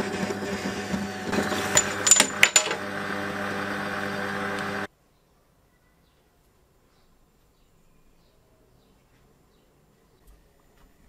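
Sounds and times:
metal lathe motor hum: 0.0 - 4.9.

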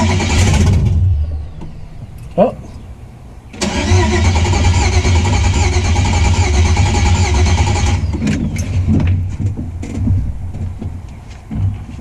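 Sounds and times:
engine starting and running: 0.0 - 1.5, 3.5 - 9.1.

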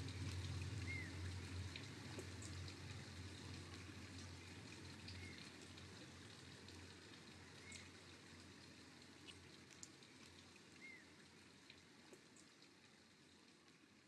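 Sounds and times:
soft ticks: 9.2 - 10.9.

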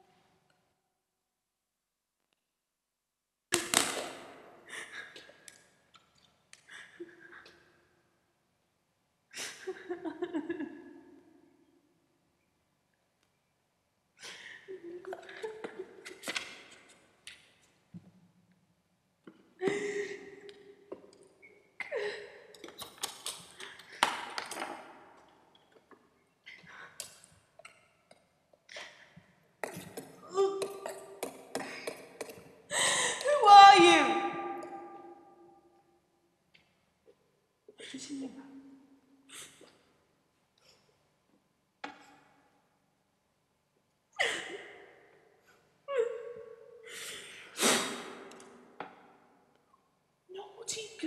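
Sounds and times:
woman gasping and moaning in pain: 30.0 - 35.3, 45.9 - 47.6.

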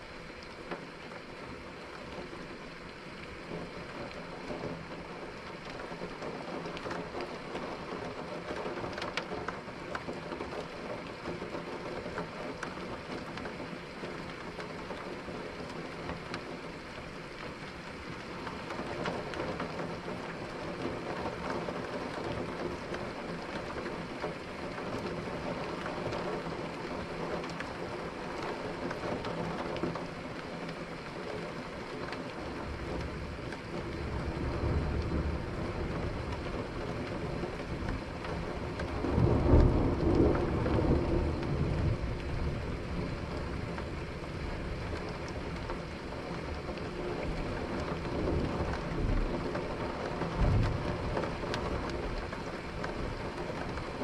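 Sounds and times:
steady rain: 0.0 - 54.0
thunder rumbling: 32.6 - 54.0.

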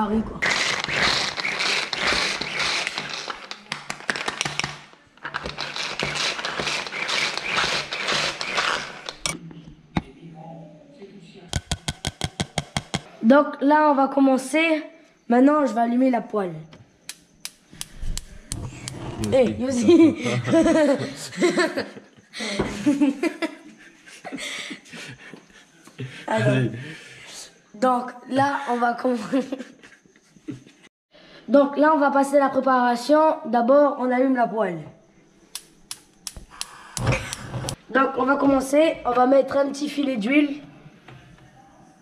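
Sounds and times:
pull-cord food chopper whirring: 0.4 - 9.4
boy laughing: 19.1 - 25.4, 28.3 - 30.8.

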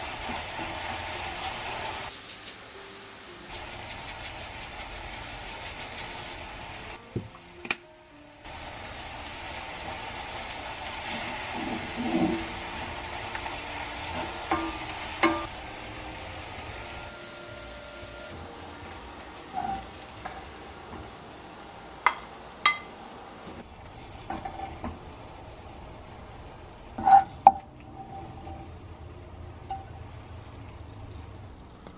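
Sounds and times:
garlic sizzling in frying pan: 0.0 - 7.5, 8.4 - 31.5
spatula stirring: 3.5 - 6.4.

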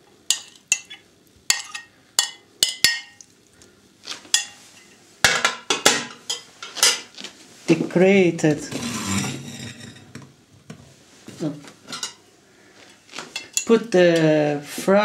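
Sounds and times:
spoon clinking and scraping plates: 0.3 - 3.2, 4.3 - 5.0, 6.1 - 7.1, 11.9 - 12.2, 13.3 - 13.8.

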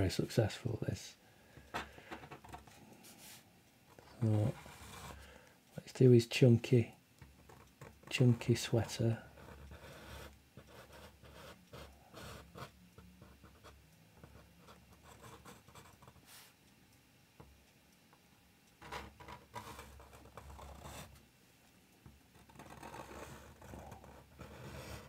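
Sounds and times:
brush pen scratching on paper: 4.5 - 5.2, 9.4 - 16.4, 18.8 - 21.1, 22.4 - 25.0.

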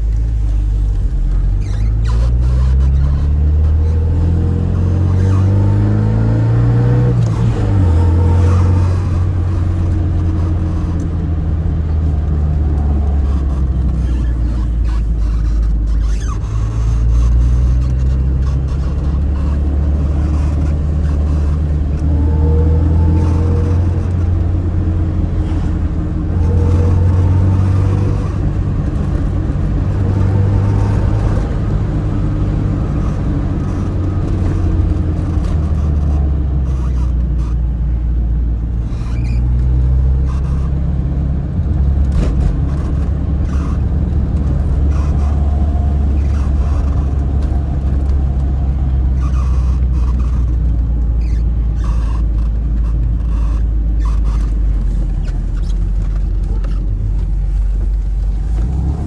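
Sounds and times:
car engine revving while driving: 0.0 - 59.0.

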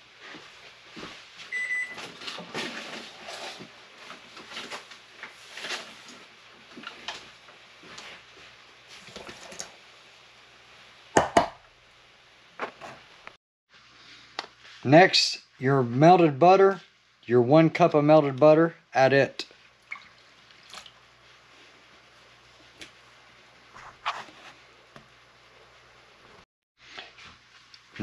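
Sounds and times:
microwave oven beep: 1.5 - 2.1.

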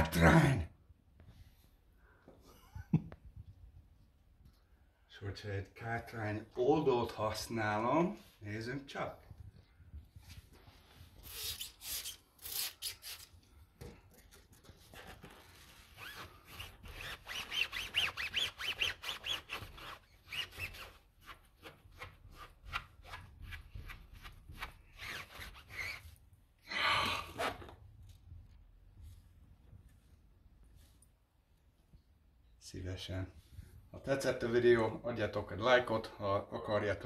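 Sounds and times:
cloth squeaking on rubber tyre: 15.8 - 21.4, 24.8 - 26.2.

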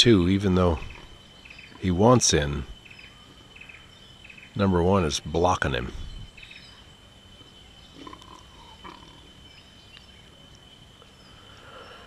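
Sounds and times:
high insect drone: 0.0 - 12.0
pig grunts: 8.0 - 9.3.

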